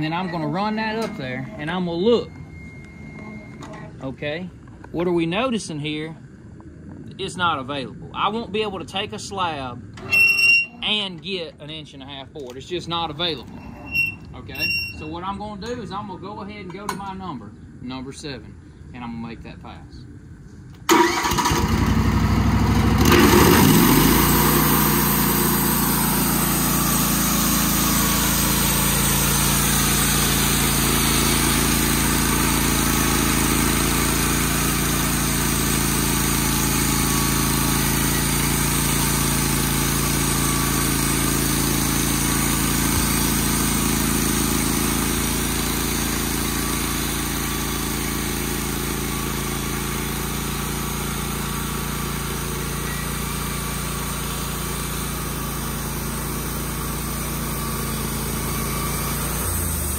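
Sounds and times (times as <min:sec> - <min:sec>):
sawmill gas engine running: 0:20.9 - 0:59.9.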